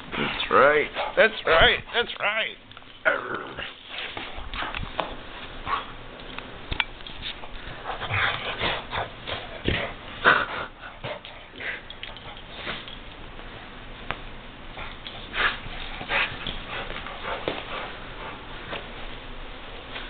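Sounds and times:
dog sniffing and huffing: 0:14.8 - 0:18.9.

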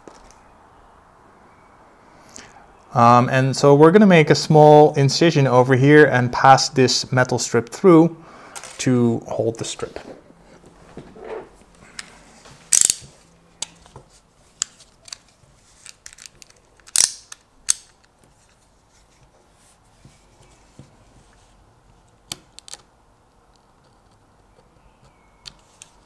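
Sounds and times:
utility knife blade ratcheting: 0:12.7 - 0:13.0, 0:16.8 - 0:18.0.

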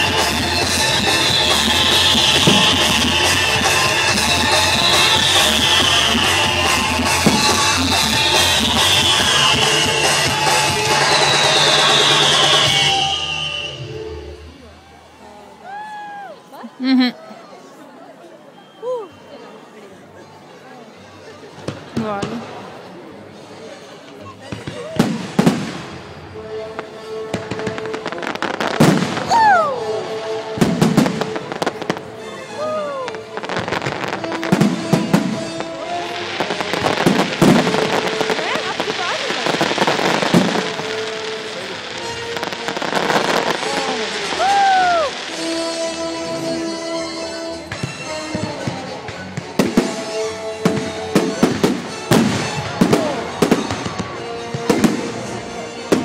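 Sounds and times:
firework bangs: 0:00.0 - 0:13.8, 0:24.6 - 0:26.2, 0:27.3 - 0:29.6, 0:30.6 - 0:32.1, 0:33.3 - 0:46.9, 0:47.7 - 0:56.0
firework crackling: 0:00.0 - 0:13.9, 0:26.8 - 0:56.0
music playing: 0:00.0 - 0:15.2, 0:25.4 - 0:56.0.

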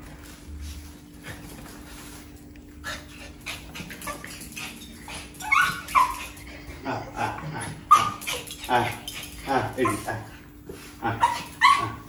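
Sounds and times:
dog whimpering and yipping: 0:03.8 - 0:06.7, 0:07.9 - 0:10.1, 0:11.2 - 0:12.0
dog yelping: 0:03.9 - 0:06.6, 0:07.8 - 0:10.1, 0:11.1 - 0:12.0.

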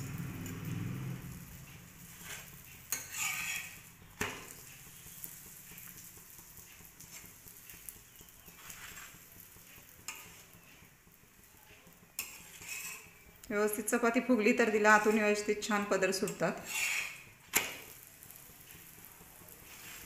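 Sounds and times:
flatbread sizzling on a pan: 0:00.0 - 0:20.0
metal spatula scraping a pan: 0:01.2 - 0:07.8, 0:08.4 - 0:10.6, 0:11.8 - 0:13.3, 0:14.4 - 0:18.9, 0:19.5 - 0:20.0.

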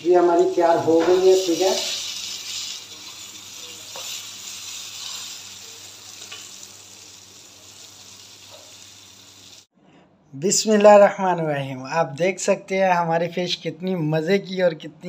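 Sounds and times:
hot oil sizzling: 0:00.0 - 0:09.7.

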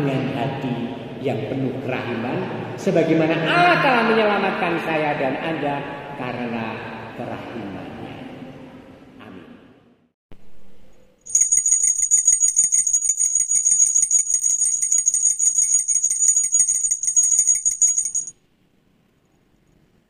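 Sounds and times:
small bells jingling: 0:11.3 - 0:18.3.

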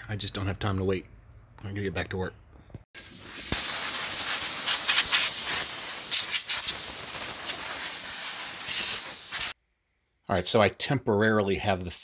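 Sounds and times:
pressurized gas hissing: 0:03.0 - 0:09.6.

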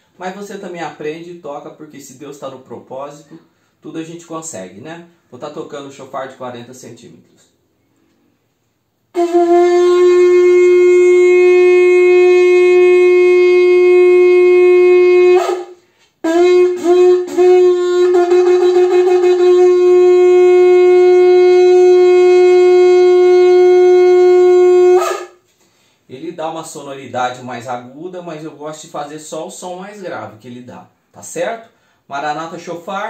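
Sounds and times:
horn blasts on a low note: 0:09.1 - 0:25.2.

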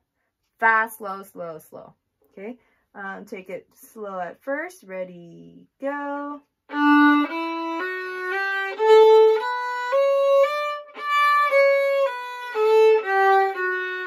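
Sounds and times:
violin playing slow scale: 0:06.6 - 0:14.0.

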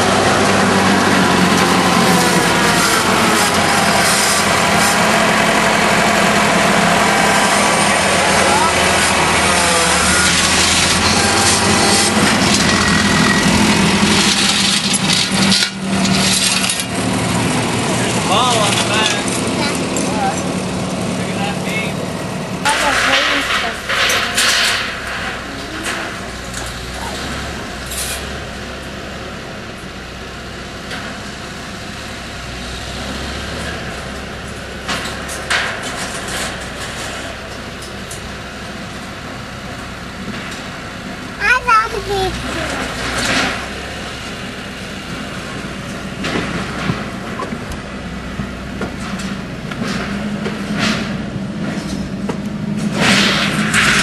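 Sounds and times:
skid-steer loader engine running: 0:00.0 - 0:54.0
debris clattering: 0:00.3 - 0:20.8, 0:22.6 - 0:28.3, 0:52.8 - 0:54.0
debris crashing: 0:22.6 - 0:27.7, 0:52.7 - 0:54.0.

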